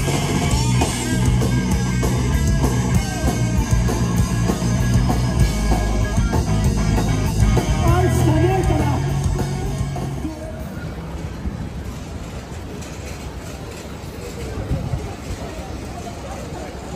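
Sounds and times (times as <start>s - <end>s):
bass guitar: 0.0s - 10.3s
distorted electric guitar: 0.0s - 10.6s.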